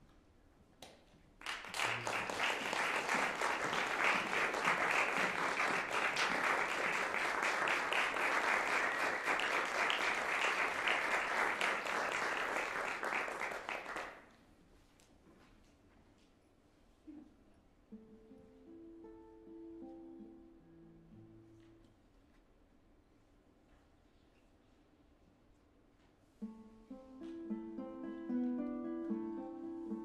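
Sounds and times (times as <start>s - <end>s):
audience applauding: 1.4s - 14.2s.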